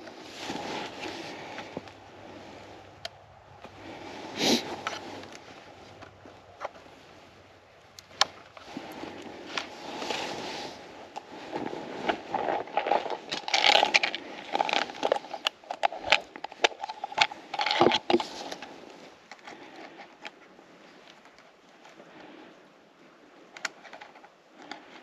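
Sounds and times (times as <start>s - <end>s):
crackles snaps and scrapes: 0.0s - 25.0s.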